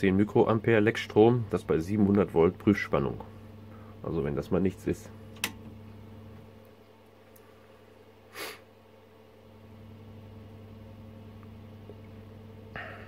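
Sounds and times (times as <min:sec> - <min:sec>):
mains hum: 0:00.0 - 0:13.0
person sniffing: 0:08.3 - 0:08.7.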